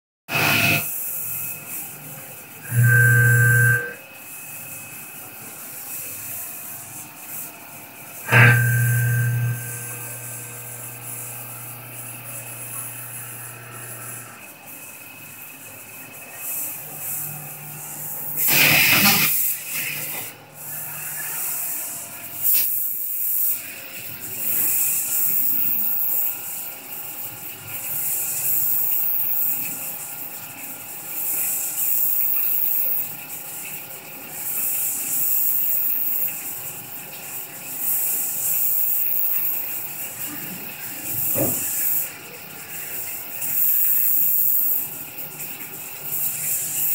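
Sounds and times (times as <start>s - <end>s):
milling machine hum: 0.3s - 22.3s
coolant spraying hiss: 17.8s - 26.3s, 37.3s - 46.9s.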